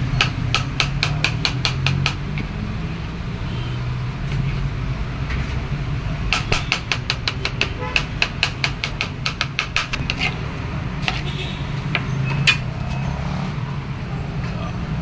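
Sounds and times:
knife chopping on cutting board: 0.2s - 2.3s.

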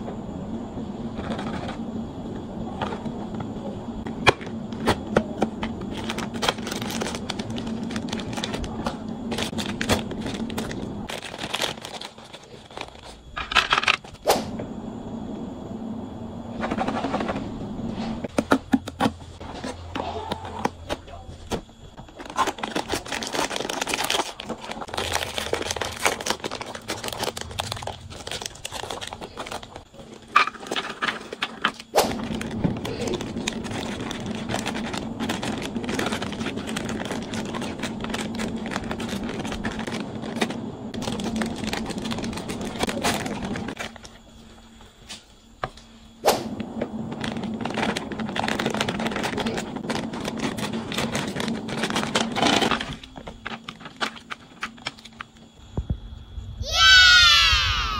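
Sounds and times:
plastic wrappers crinkling: 5.7s - 13.2s, 22.1s - 44.2s, 47.0s - 55.3s.

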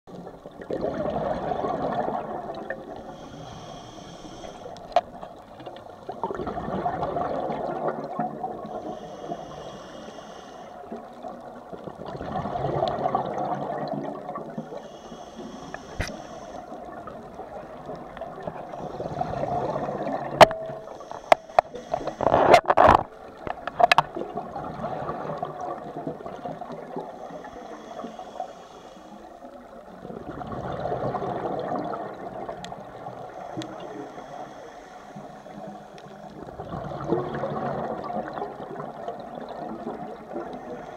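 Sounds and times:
gurgling exhaled bubbles: 0.2s - 3.2s, 5.9s - 9.0s, 11.1s - 14.8s, 15.9s - 20.9s, 21.9s - 27.2s, 29.8s - 33.2s, 36.4s - 40.9s
hissing regulator inhale: 3.0s - 4.9s, 8.6s - 11.0s, 14.6s - 16.9s, 20.8s - 22.6s, 27.0s - 29.5s, 33.2s - 36.4s, 40.5s - 40.9s.

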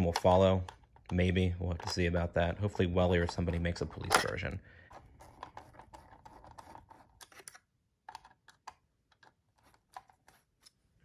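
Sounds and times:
screwdriver clicks and scrapes: 3.2s - 10.9s.

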